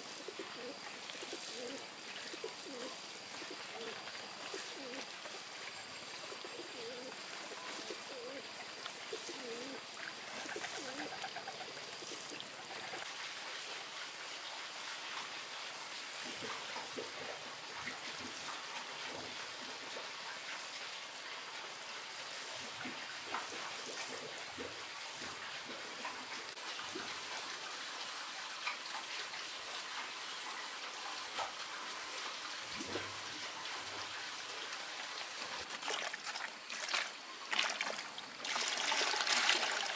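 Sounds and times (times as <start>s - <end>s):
trickle of running water: 0.0s - 39.9s
doves cooing: 0.1s - 5.5s, 6.1s - 13.0s
small clicks and splashes: 35.6s - 39.9s.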